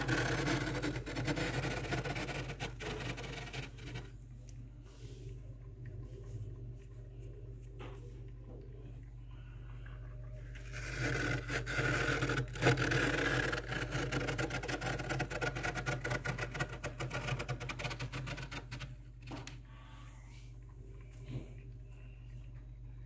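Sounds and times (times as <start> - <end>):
fingers scraping frost in freezer: 0.0 - 4.2, 10.6 - 18.9
steady low hum: 0.0 - 23.0.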